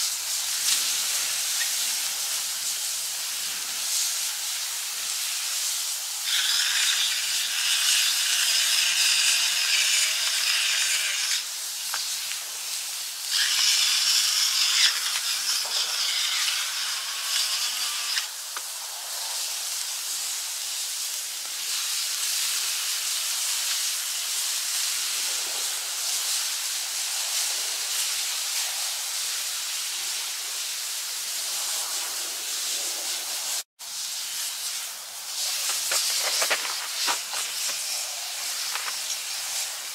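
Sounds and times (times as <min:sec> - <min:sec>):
steak sizzling in a skillet: 0:00.0 - 0:39.9
fire cracks: 0:11.3 - 0:15.7, 0:33.9 - 0:39.9.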